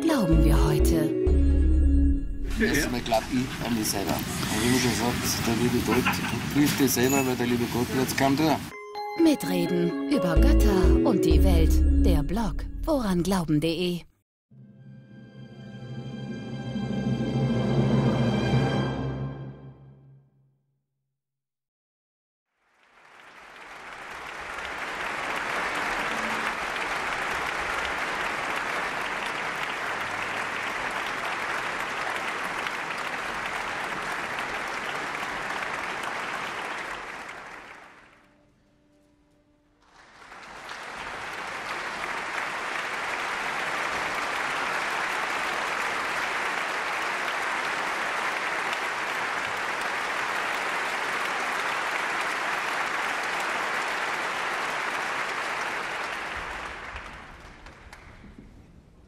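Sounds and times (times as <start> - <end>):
audience applauding: 2.6 - 8.6, 22.6 - 38.4, 39.8 - 58.4.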